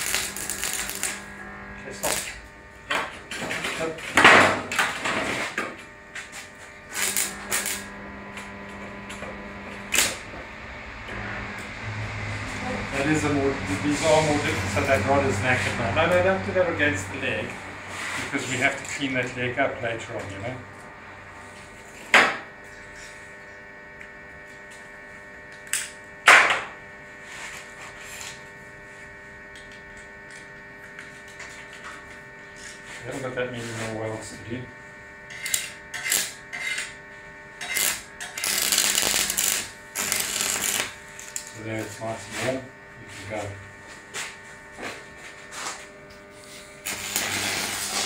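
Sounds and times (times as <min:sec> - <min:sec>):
welding electrode crackling: 0:00.0 - 0:04.0, 0:04.8 - 0:16.6, 0:18.3 - 0:20.6, 0:35.2 - 0:42.0, 0:46.1 - 0:48.0.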